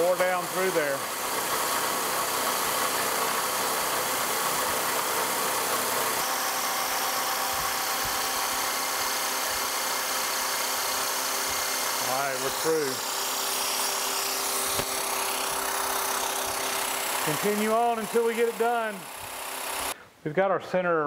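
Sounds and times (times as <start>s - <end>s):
milling machine cutting steel: 0.0s - 20.0s
mist coolant hissing: 7.4s - 20.0s.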